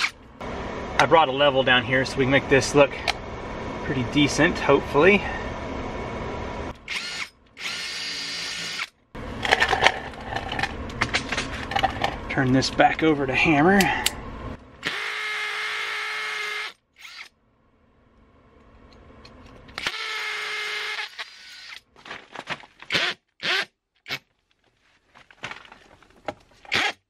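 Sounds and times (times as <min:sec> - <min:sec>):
hammer drill boring into concrete: 0:06.9 - 0:08.9, 0:14.8 - 0:17.3, 0:19.8 - 0:21.8, 0:26.7 - 0:27.0.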